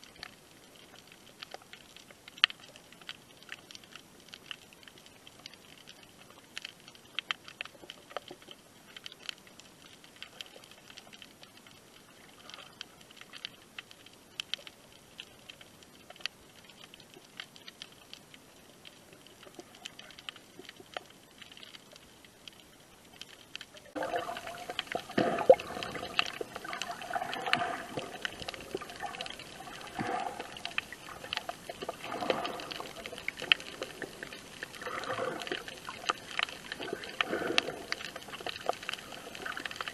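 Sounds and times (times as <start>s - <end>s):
faint underwater clicks and crackles: 0.0s - 39.9s
muffled churning of water: 14.8s - 39.9s.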